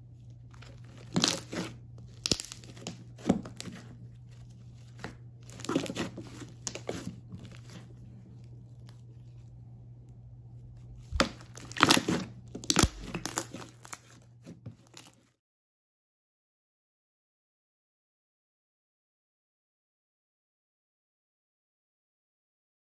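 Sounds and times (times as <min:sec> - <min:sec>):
slime crackling and popping: 0:00.6 - 0:03.8, 0:05.0 - 0:07.8, 0:11.1 - 0:14.2, 0:14.8 - 0:15.2.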